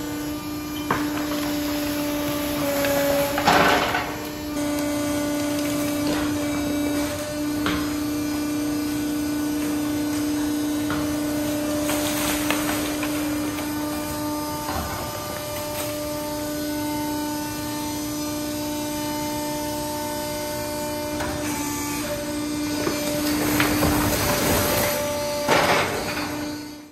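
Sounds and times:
hydraulic power unit humming: 0.0s - 26.9s
bagged waste dropping into bin: 11.1s - 15.8s.

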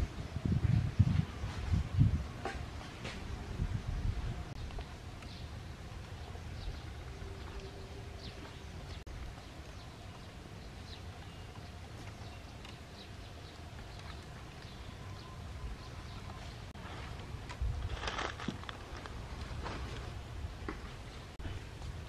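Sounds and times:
small birds chirping: 4.5s - 16.8s.

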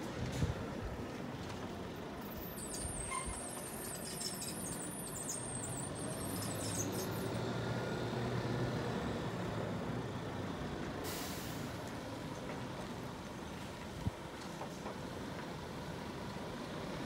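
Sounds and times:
thin high squeal: 2.4s - 7.2s.

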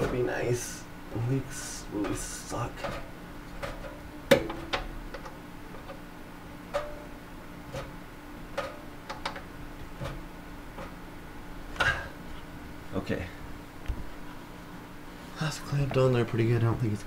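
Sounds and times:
sharp clicks and light knocks: 8.6s - 10.2s.

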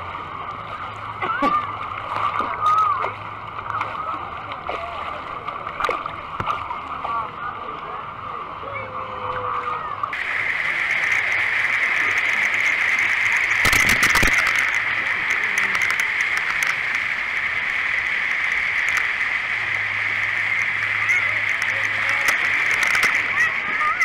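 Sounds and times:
splashing wave pool water: 0.0s - 24.0s
loud water splash: 9.1s - 24.0s.

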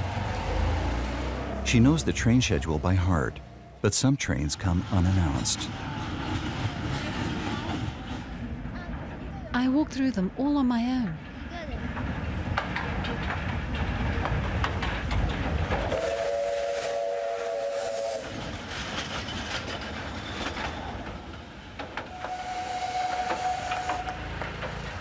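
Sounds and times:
steam train rumbling: 0.0s - 25.0s
wheels clicking on rail: 11.8s - 16.7s, 18.2s - 25.0s
train whistle: 15.9s - 18.5s, 22.1s - 24.4s.

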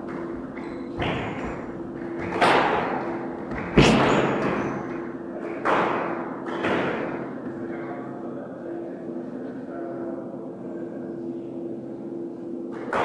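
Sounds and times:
squash ball hits echoing: 0.0s - 7.6s.

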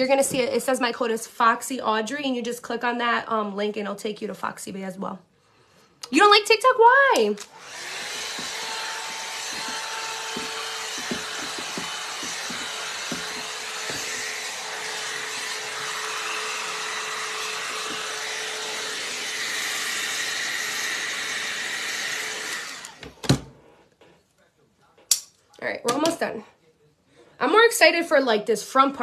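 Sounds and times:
hair dryer brush running: 7.4s - 23.0s.

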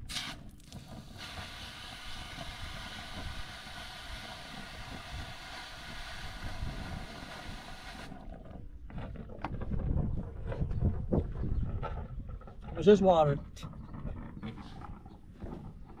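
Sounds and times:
pump hose suction hiss: 0.0s - 8.3s.

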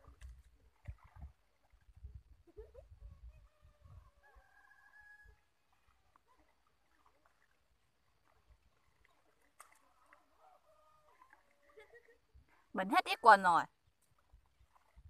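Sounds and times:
distant rooster crowing: 3.9s - 5.5s.

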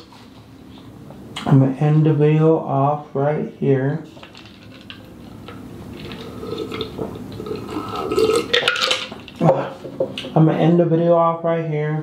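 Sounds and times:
person drinking from a cup: 4.7s - 9.7s
swallowing: 6.0s - 8.7s.

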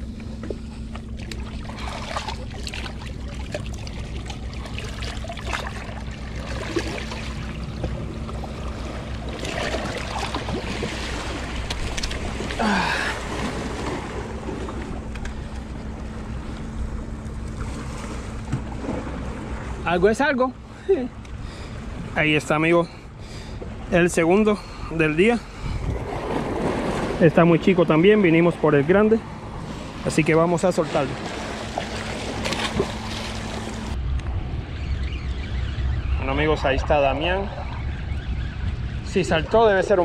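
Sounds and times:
steady low hum: 0.0s - 40.0s
splashing at water's edge: 1.2s - 8.0s, 9.0s - 14.1s, 30.8s - 34.0s
wind on microphone: 25.6s - 27.2s, 32.3s - 40.0s.

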